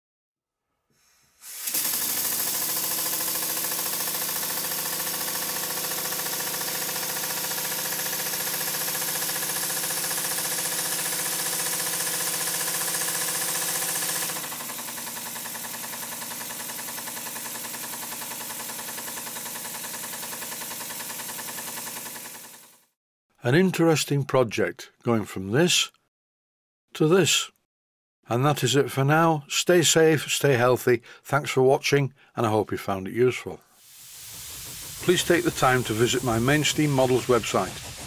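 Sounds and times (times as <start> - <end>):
hiss of air: 1.0 - 2.1, 33.7 - 38.0
model steam engine exhaust beat: 1.5 - 22.7, 33.8 - 38.0.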